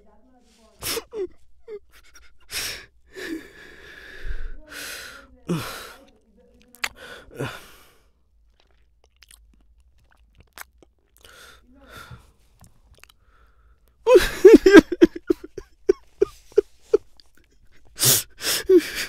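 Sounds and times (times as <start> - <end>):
man sobbing: 0.8 - 3.9, 5.5 - 6.0, 7.3 - 7.8, 14.1 - 19.0.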